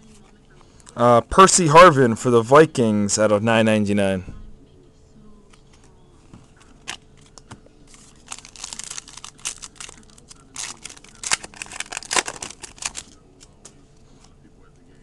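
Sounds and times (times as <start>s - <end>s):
foil wrapper crinkling and tearing: 6.8s - 13.2s.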